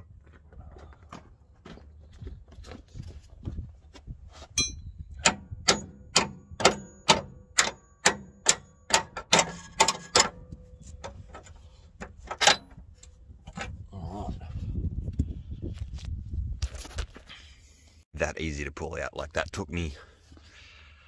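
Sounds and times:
hammer striking steel: 0:04.6 - 0:10.4.

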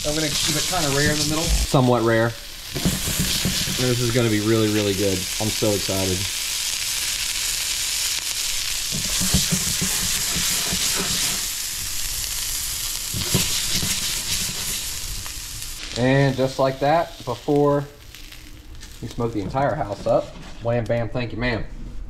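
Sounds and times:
fish steak sizzling in skillet: 0:00.0 - 0:20.2
spatula knocking and scraping pan: 0:02.8 - 0:04.1, 0:08.9 - 0:11.4, 0:13.1 - 0:14.8.

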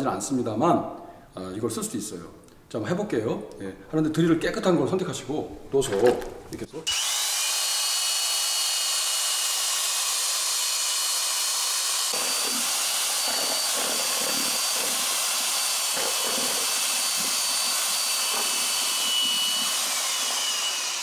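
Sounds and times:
liquid sloshing: 0:05.7 - 0:06.6
electric drill mixer whine: 0:06.9 - 0:21.0.

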